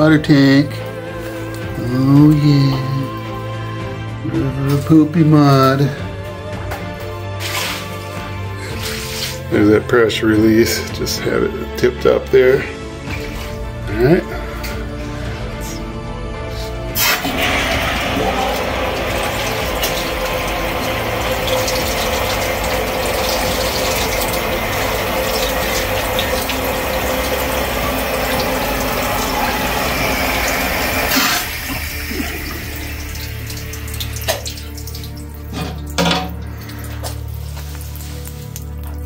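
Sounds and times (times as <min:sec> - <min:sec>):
water splashing onto concrete floor: 0:07.4 - 0:09.5, 0:17.0 - 0:39.0.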